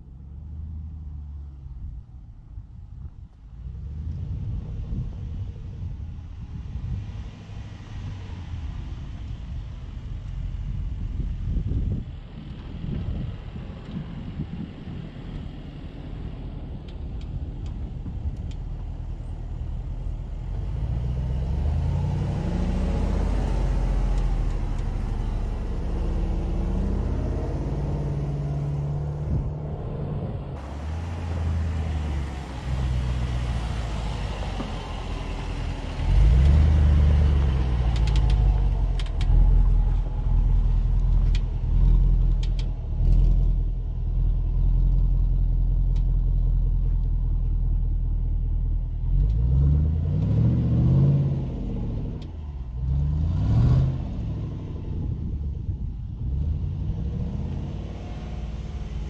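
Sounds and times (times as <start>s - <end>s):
engine revving and accelerating: 20.4s - 46.3s, 49.0s - 59.0s.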